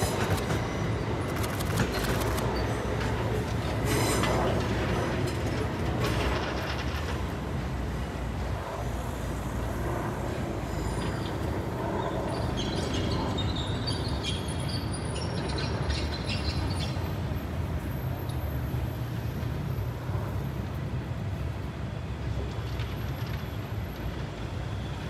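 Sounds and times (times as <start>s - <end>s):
train rumbling on tracks: 0.0s - 25.0s.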